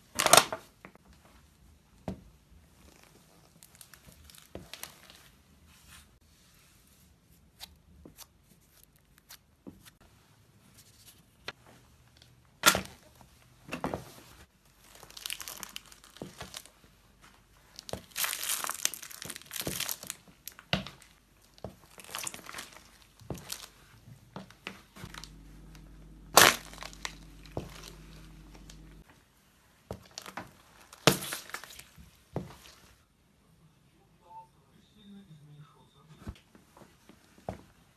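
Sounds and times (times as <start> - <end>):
objects crunching under a shoe: 21.6 - 23.7, 25.0 - 29.0.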